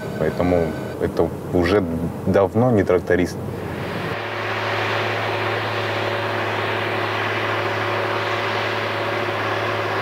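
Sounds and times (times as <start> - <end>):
faint steady tone: 0.0 - 1.6
engine steady low drone: 0.0 - 10.0.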